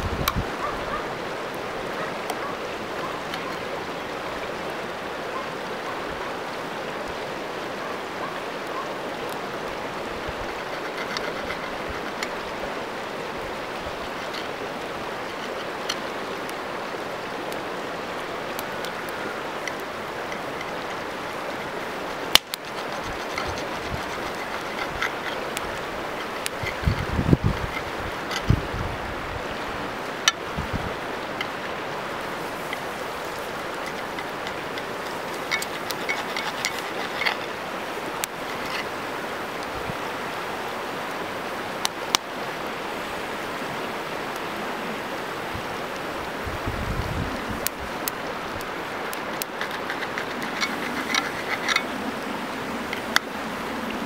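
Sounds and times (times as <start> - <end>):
river flowing: 0.0 - 54.0
knife and fork on iron pan: 22.4 - 28.2, 49.3 - 51.9.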